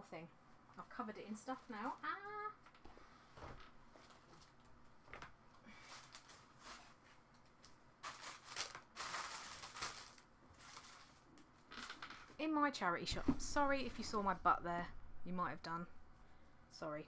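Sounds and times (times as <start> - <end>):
rustling and crinkling: 1.4 - 12.4.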